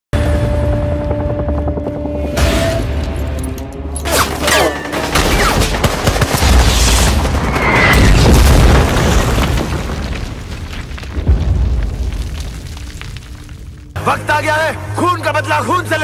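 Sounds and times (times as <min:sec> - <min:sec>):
heavy explosions: 0:05.7 - 0:14.0.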